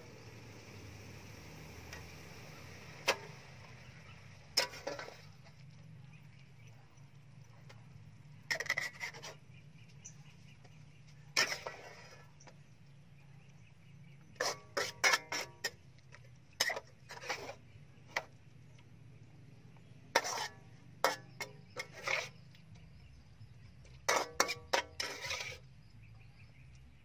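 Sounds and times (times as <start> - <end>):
metal ladle scraping a wok: 1.6 - 5.6, 8.4 - 9.6, 11.3 - 12.6, 14.3 - 18.4, 20.1 - 23.2, 23.9 - 25.9.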